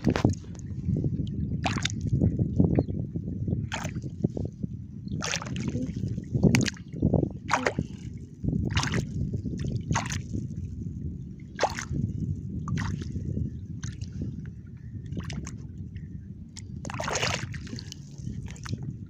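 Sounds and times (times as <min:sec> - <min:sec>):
steady low rumble: 0:00.0 - 0:19.0
hand sloshing through shallow water: 0:01.6 - 0:02.0, 0:03.7 - 0:04.1, 0:05.2 - 0:06.8, 0:07.4 - 0:08.1, 0:08.7 - 0:09.2, 0:09.8 - 0:10.4, 0:11.6 - 0:12.0, 0:12.6 - 0:13.2, 0:16.8 - 0:18.9
short water splashes: 0:01.6 - 0:02.1, 0:03.7 - 0:04.1, 0:05.2 - 0:10.4, 0:11.5 - 0:12.0, 0:12.6 - 0:13.2, 0:16.8 - 0:18.8.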